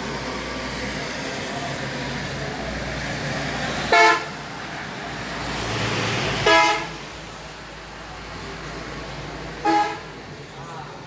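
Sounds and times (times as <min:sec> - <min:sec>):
rain and traffic on wet road: 0:00.0 - 0:11.0
vehicle horn toots: 0:03.9 - 0:04.3, 0:06.4 - 0:06.9, 0:09.6 - 0:10.0.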